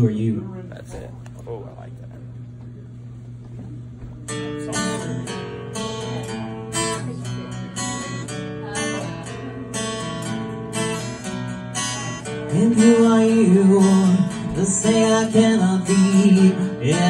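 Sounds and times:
acoustic guitar strumming: 4.1 - 17.0.

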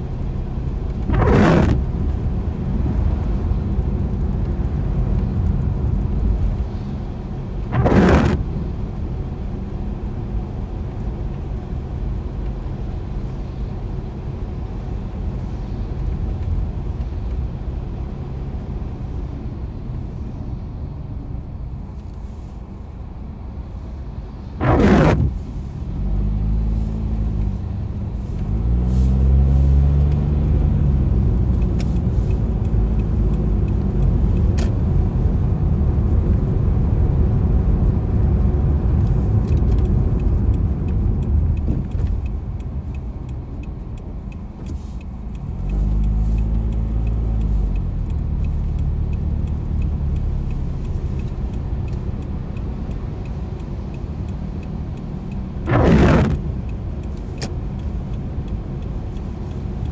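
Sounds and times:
car engine accelerating: 0.0 - 4.4, 7.5 - 9.0, 24.4 - 59.9
tyres hissing on wet road: 0.2 - 3.6, 7.6 - 8.8, 23.7 - 31.0, 44.4 - 53.5, 54.4 - 59.8.

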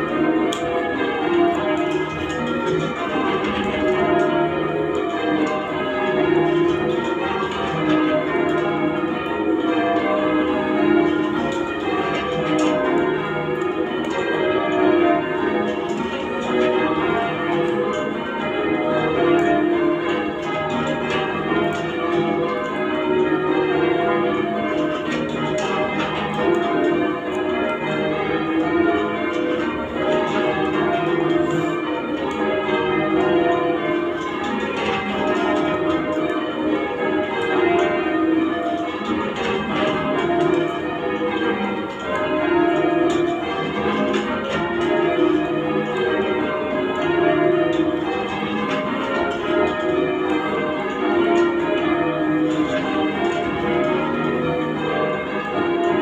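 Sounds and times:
church bells change ringing: 0.0 - 56.0.

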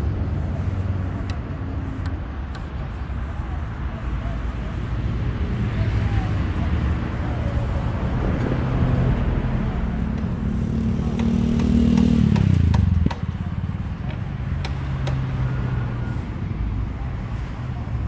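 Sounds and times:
sharp knocks: 11.1 - 13.4.

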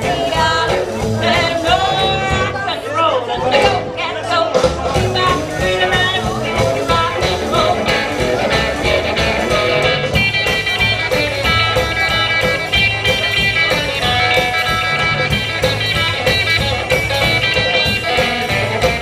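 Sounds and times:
electric guitar: 0.0 - 19.0
rockabilly band playing live: 0.0 - 19.0.

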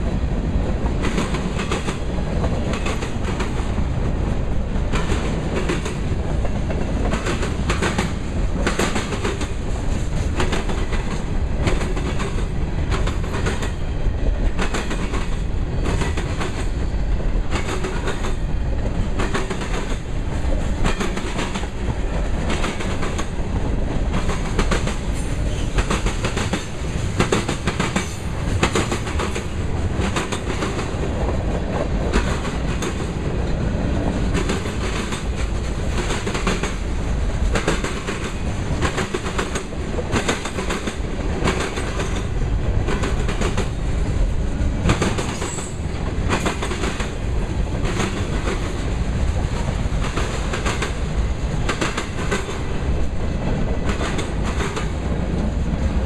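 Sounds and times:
train wheels rumbling on rail: 0.0 - 56.0
wheels clickety-clack: 0.7 - 3.8, 4.8 - 56.0.

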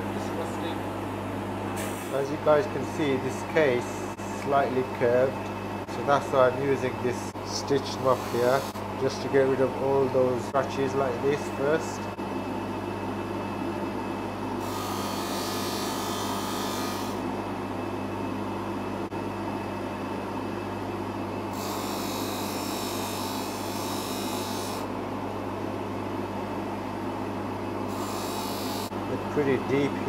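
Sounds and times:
polishing motor humming: 6.8 - 8.8, 14.6 - 17.2, 27.9 - 29.0.

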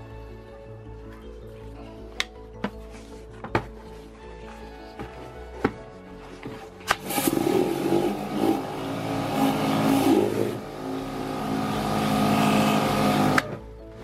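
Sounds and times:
pressure washer motor whining: 6.9 - 13.6
water jet hissing: 7.0 - 13.3.

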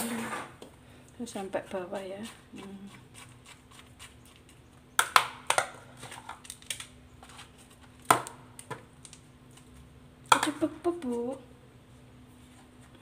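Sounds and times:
faint steady hum: 0.0 - 13.0
leaf and spoon clicks and crinkles: 5.1 - 10.5.

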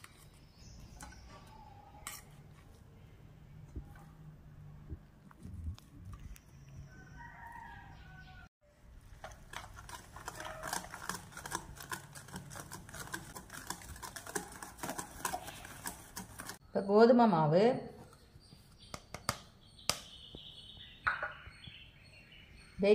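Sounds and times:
whisk clicking against bowl: 9.2 - 16.6.

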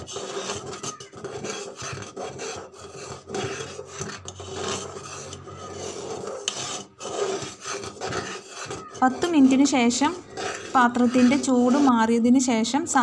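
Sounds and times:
metal spoon scraping pot: 0.0 - 13.0.

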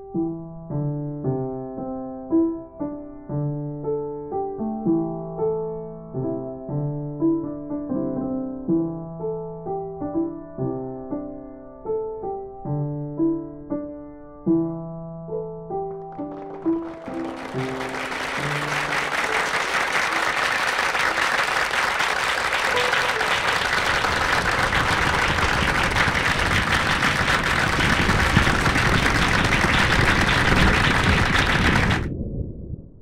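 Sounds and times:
piano notes: 0.0 - 29.7
audience applauding: 16.1 - 32.1.

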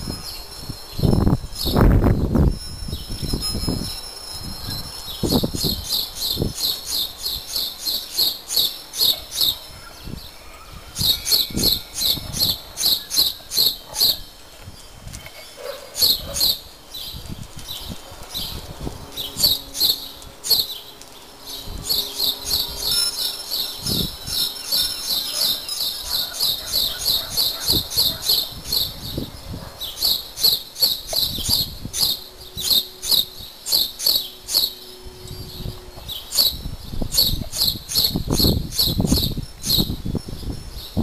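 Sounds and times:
small bird chirping: 0.1 - 14.3, 19.2 - 41.0.

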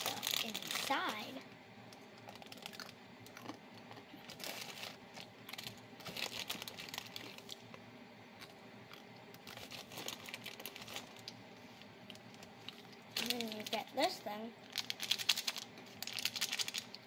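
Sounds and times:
plastic wrapper crinkling: 0.0 - 7.7, 8.4 - 11.4, 12.0 - 14.0, 14.6 - 17.0
dry noodles breaking: 2.2 - 7.6, 14.7 - 17.0.

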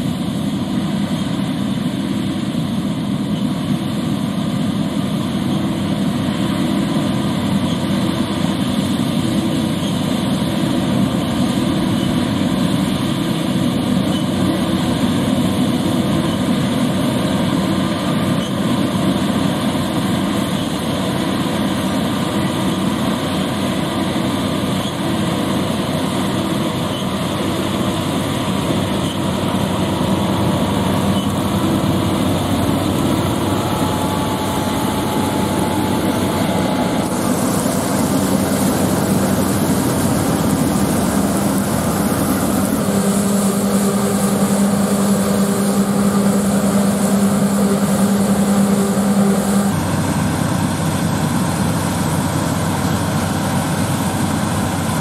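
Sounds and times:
heavy machinery engines drone: 0.0 - 55.0
steady low hum: 19.5 - 51.6.

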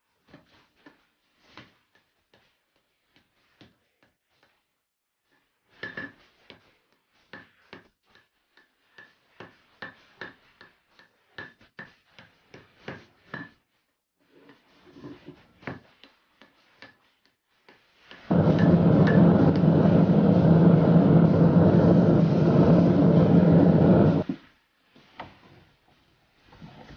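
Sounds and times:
hammer striking hot metal on anvil: 18.3 - 24.2.

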